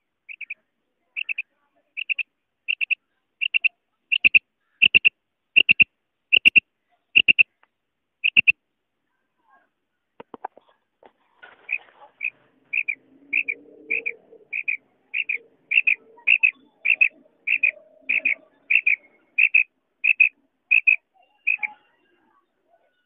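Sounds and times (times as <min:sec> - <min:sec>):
quail calling: 0:00.0 - 0:00.6, 0:01.2 - 0:01.4, 0:02.0 - 0:06.6, 0:07.2 - 0:07.6, 0:08.2 - 0:08.5, 0:11.5 - 0:22.0.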